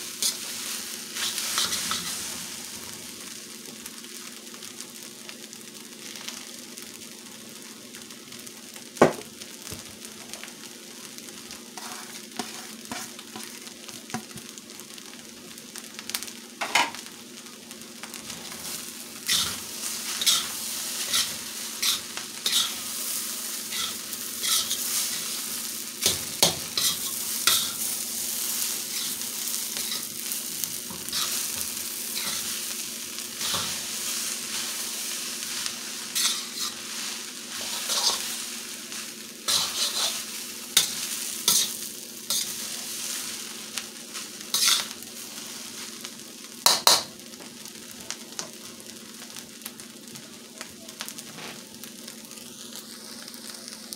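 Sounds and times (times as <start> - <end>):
rice sizzling in a wok: 0.0 - 53.9
metal spatula scraping and clacking: 11.8 - 13.5, 19.3 - 19.6, 20.2 - 22.8, 23.7 - 25.2, 26.0 - 27.8, 36.2 - 36.8, 37.6 - 38.2, 39.5 - 40.2, 40.8 - 42.5, 44.5 - 44.9.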